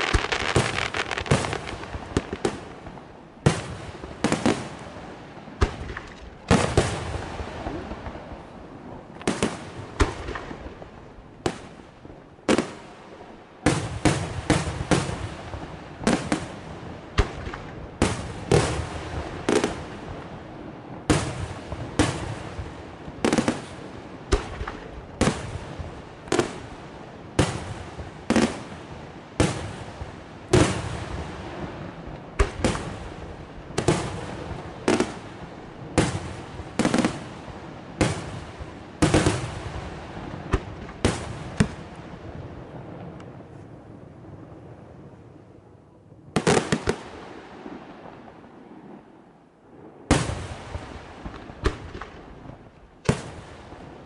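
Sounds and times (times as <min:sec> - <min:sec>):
firework shells bursting: 0:00.0 - 0:02.6.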